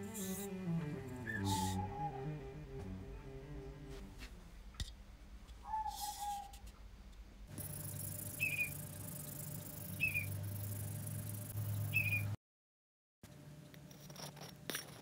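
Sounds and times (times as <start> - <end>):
steady low hum: 0.0 - 5.6, 6.8 - 12.0
bird calling: 1.2 - 2.5, 5.6 - 6.6.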